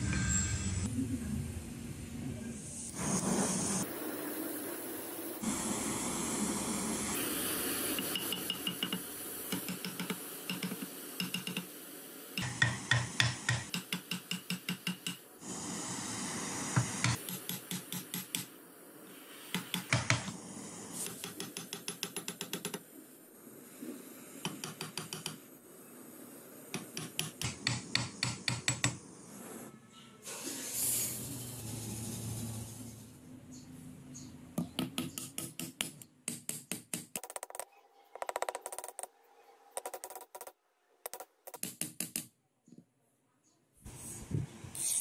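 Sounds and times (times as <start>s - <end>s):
gas torch hissing: 2.6s - 33.2s, 43.9s - 45.0s
hammer tapping steel chisel: 8.1s - 11.7s, 12.4s - 15.2s, 21.1s - 22.8s, 24.4s - 25.5s, 26.7s - 29.0s.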